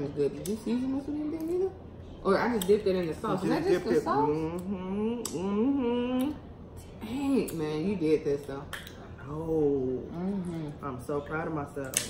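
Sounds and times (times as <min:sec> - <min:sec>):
sharp mouth click: 0:04.6 - 0:05.5, 0:08.7 - 0:09.0.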